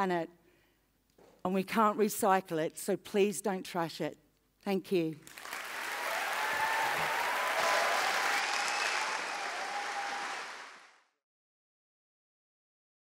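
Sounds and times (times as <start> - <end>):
audience applauding: 5.3 - 11.1.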